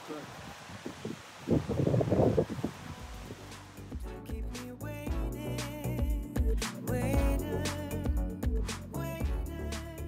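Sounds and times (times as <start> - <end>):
wind buffeting microphone: 0.2 - 3.5
background music: 3.0 - 10.0.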